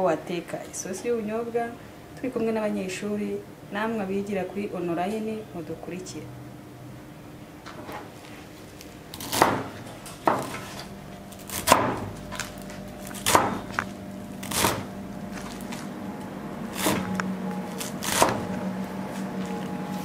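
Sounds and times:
knife chopping greens on board: 9.2s - 10.7s, 11.5s - 12.5s, 13.1s - 13.8s, 14.4s - 14.9s, 17.8s - 18.5s.

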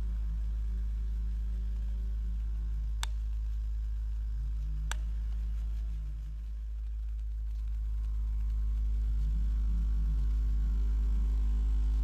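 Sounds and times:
stirling engine humming: 0.0s - 12.0s
wavering faint tone: 0.0s - 12.0s
sharp clicks: 3.0s - 3.4s.

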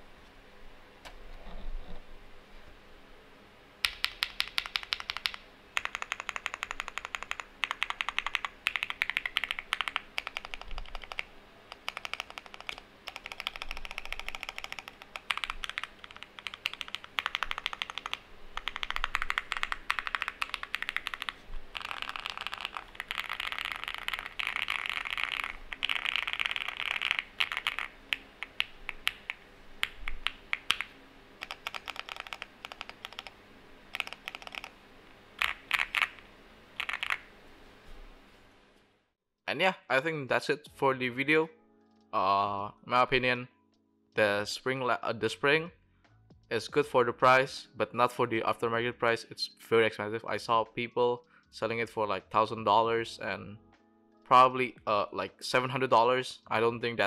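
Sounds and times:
mechanical keyboard clacking: 3.8s - 33.3s, 33.9s - 34.7s, 35.4s - 36.2s, 36.8s - 37.2s.

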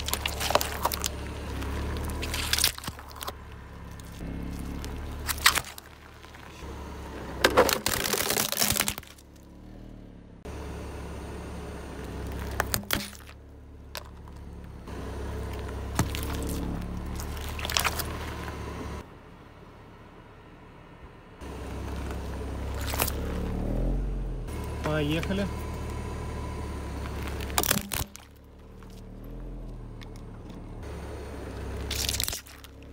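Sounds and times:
plastic crunching: 0.0s - 6.7s, 7.4s - 9.4s, 15.6s - 18.4s, 22.6s - 23.3s, 27.0s - 29.0s, 31.8s - 32.9s
plastic toys cracking under tyre: 0.0s - 6.7s, 7.4s - 9.5s, 12.3s - 14.4s, 15.5s - 18.4s, 22.1s - 23.3s, 27.0s - 29.0s, 31.8s - 32.9s
car engine running: 0.0s - 32.9s.

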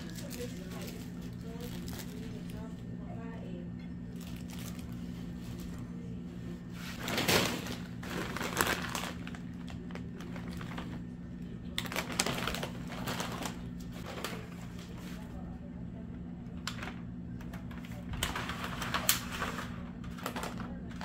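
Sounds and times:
plastic bags crinkling: 0.0s - 2.7s, 4.1s - 5.8s, 6.9s - 11.1s, 11.7s - 14.6s, 18.2s - 21.0s
steady low hum: 0.0s - 21.0s.

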